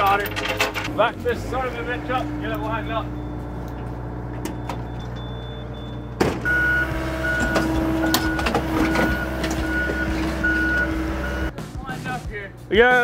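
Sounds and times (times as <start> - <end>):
diesel machinery running: 0.0 - 12.7
backup alarm beeping: 2.0 - 11.5.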